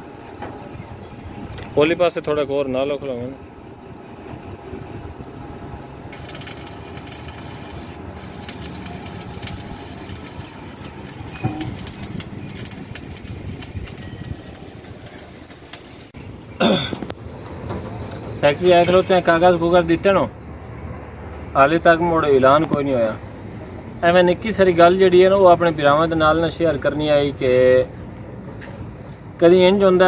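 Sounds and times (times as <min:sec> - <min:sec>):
welding arc crackling hiss: 0:06.1 - 0:16.2.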